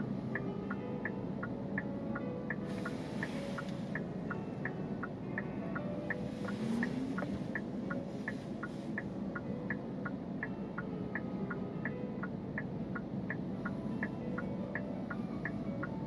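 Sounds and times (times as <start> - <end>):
car cabin hum: 1.0 - 11.2
car turn signal clicking: 2.5 - 5.5, 6.1 - 11.2.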